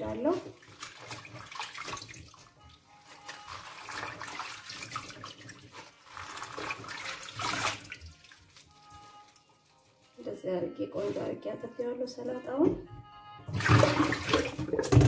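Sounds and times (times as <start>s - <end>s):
water splashing and dripping: 0.0s - 9.4s, 13.5s - 15.0s.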